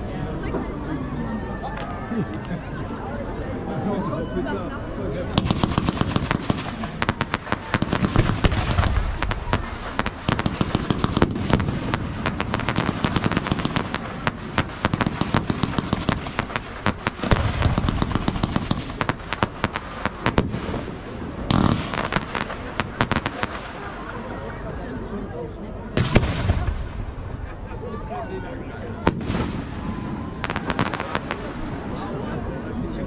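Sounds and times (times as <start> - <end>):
fireworks crackling and popping: 5.3 - 24.1, 26.0 - 27.3, 29.0 - 31.9
deep firework booms: 5.4 - 23.8, 26.0 - 27.4, 29.0 - 31.8.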